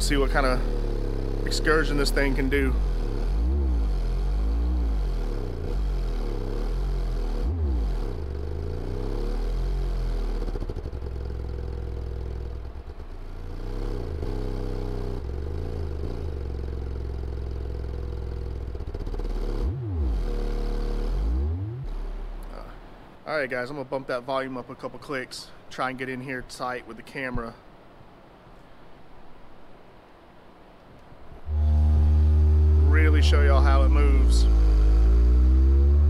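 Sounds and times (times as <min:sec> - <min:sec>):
subwoofer gliding bass tones: 0:00.0 - 0:23.0, 0:31.4 - 0:36.0.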